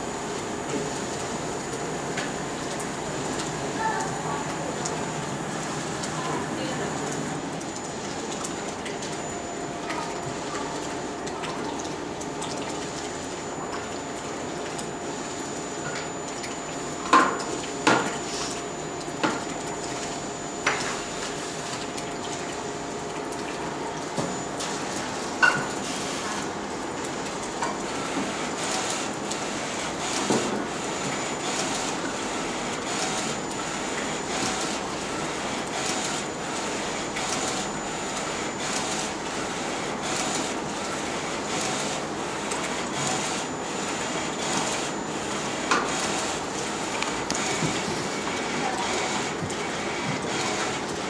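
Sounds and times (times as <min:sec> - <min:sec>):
printer mechanical hiss: 0:17.8 - 0:19.2, 0:24.1 - 0:26.9, 0:27.8 - 0:51.0.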